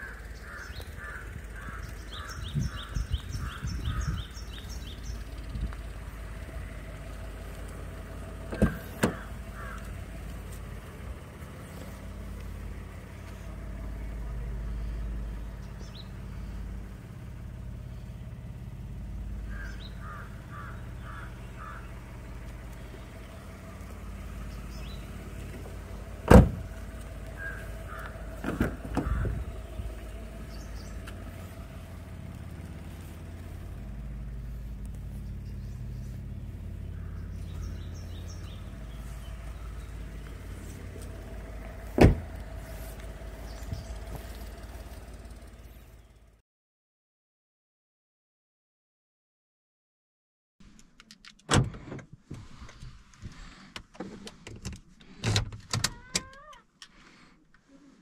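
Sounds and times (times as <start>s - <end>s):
engine humming: 0.0s - 46.4s.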